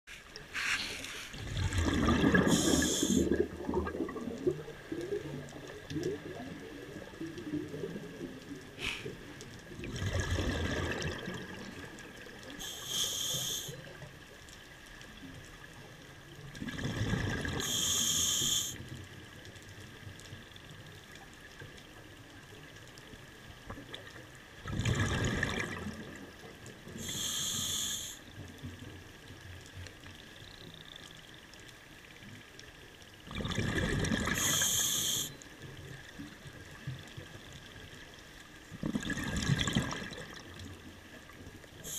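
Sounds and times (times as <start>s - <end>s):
regulator inhale hiss: 0.5s - 1.4s, 2.4s - 3.3s, 8.8s - 9.2s, 12.5s - 14.0s, 17.6s - 18.9s, 27.0s - 28.3s, 34.3s - 35.4s
exhaled bubbles rushing underwater: 1.3s - 14.2s, 15.2s - 18.0s, 23.6s - 27.3s, 33.2s - 38.0s, 38.7s - 41.9s.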